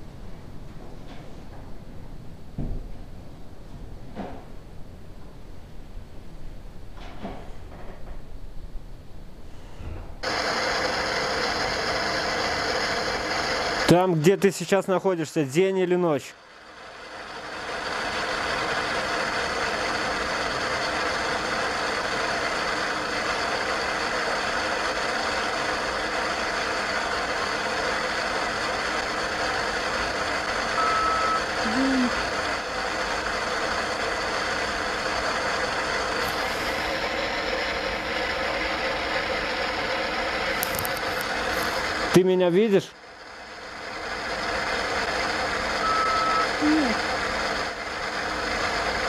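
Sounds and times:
faint humming tones: 29.4s - 32.7s
short beep: 30.8s - 31.5s, 45.8s - 46.5s.

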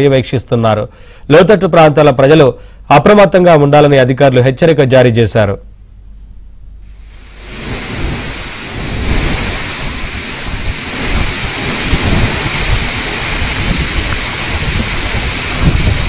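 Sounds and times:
wind over choppy water: 7.0s - 16.0s
wind buffeting microphone: 7.1s - 16.0s.

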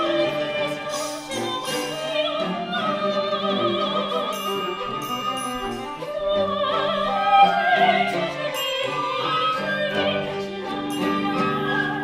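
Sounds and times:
orchestral accompaniment: 0.0s - 12.0s
woman singing with vibrato: 0.0s - 12.0s
bright chimes: 4.2s - 6.2s, 8.5s - 9.7s, 10.8s - 11.9s.

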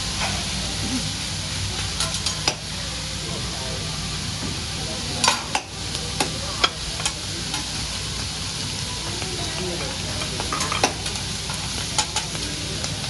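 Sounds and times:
food sizzling on a griddle: 0.0s - 13.0s
metal utensils clicking and scraping: 1.8s - 2.6s, 9.1s - 13.0s.

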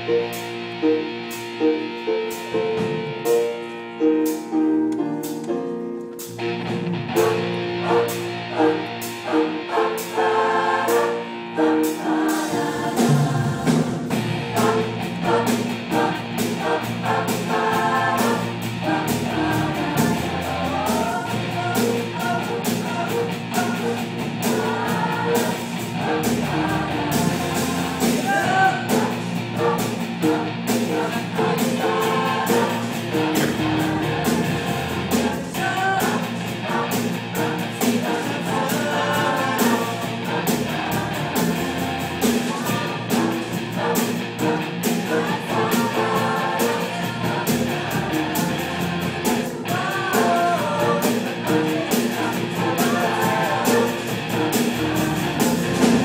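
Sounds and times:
rock band playing: 0.0s - 56.0s
choir singing: 6.4s - 56.0s.

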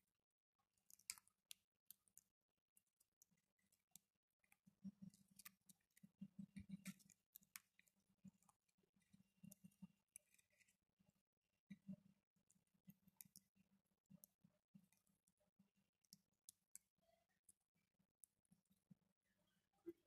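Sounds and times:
beaks pecking food: 0.7s - 10.8s, 11.7s - 15.4s.

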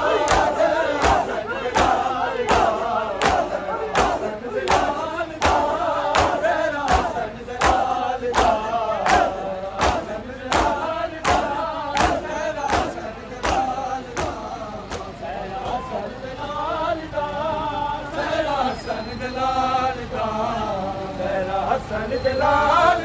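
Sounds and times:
men chanting together: 0.0s - 23.0s
hands beating chests: 0.2s - 15.1s.

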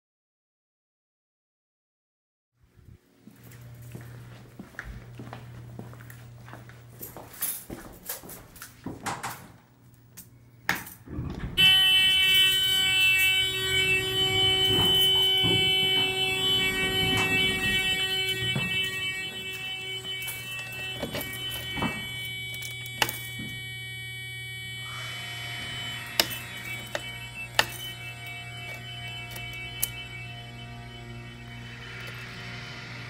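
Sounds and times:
alarm buzzer steady tone: 11.1s - 33.0s
key switch clicks: 20.3s - 23.6s.

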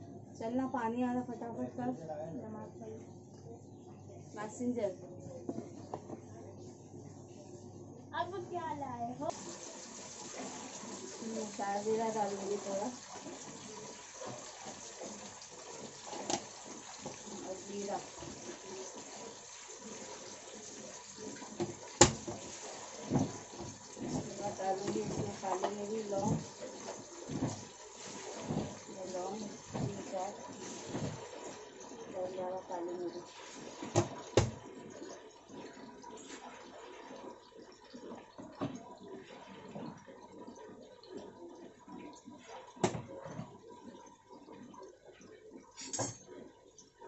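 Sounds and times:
onions sizzling in hot oil: 9.3s - 20.5s.

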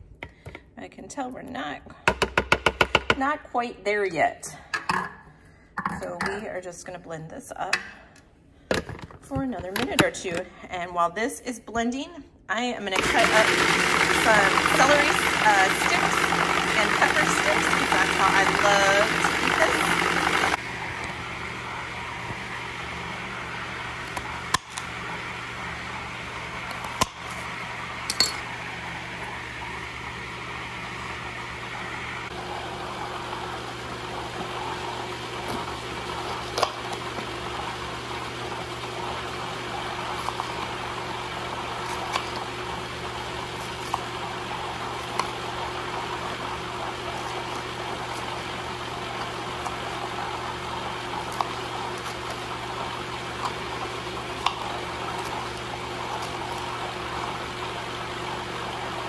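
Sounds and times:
food processor motor running: 12.9s - 59.0s.

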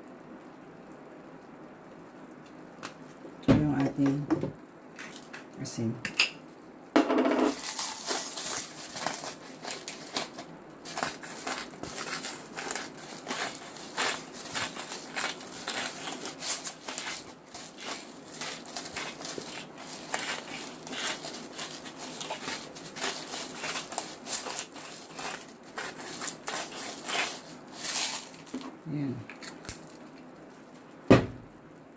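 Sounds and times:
shaker bottle rattling: 7.4s - 28.7s
seasoning shaken from packet: 7.5s - 28.6s.

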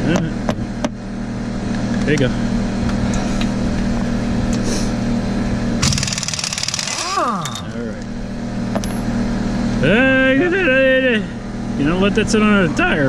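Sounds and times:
air impact wrench: 5.8s - 7.8s.

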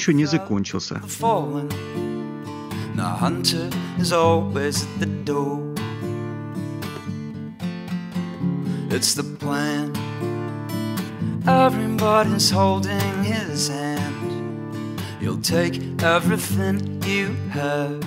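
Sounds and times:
acoustic guitar strumming: 0.0s - 18.0s.

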